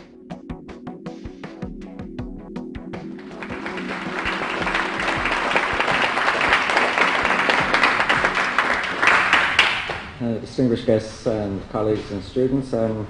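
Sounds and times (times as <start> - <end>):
plucked intro music: 3.2 - 8.9
audience applause: 3.2 - 10.2.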